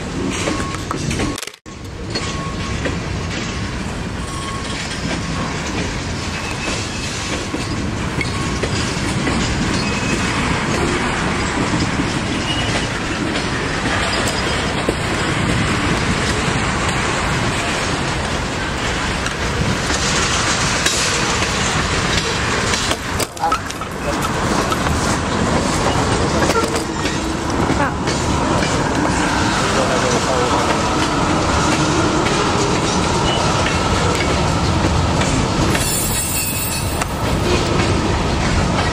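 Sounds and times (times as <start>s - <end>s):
train wheels on rails: 0.0s - 38.9s.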